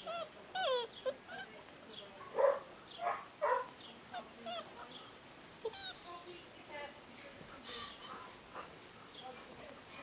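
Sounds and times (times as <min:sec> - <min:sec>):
puppies whining and yipping: 0:00.0 - 0:01.7, 0:05.6 - 0:06.0
puppy barks: 0:02.2 - 0:03.8.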